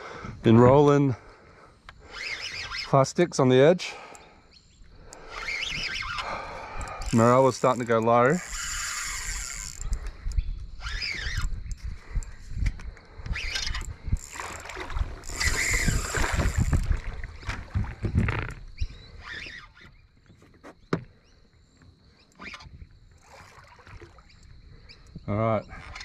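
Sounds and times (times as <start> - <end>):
gear clicks: 5.1 - 16.9
fish thrashing and splashing: 14.2 - 18.6.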